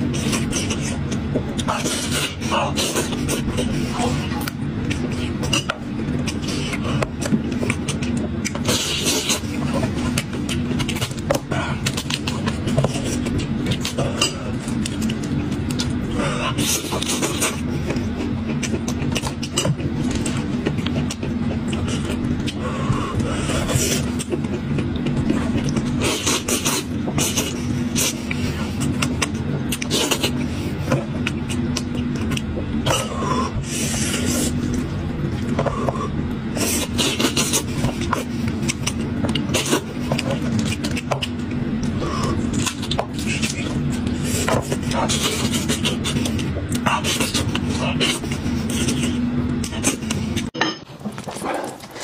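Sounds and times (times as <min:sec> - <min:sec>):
low hum: 0:00.0 - 0:52.0
wet chewing and lip smacking: 0:02.7 - 0:22.6, 0:31.0 - 0:32.7.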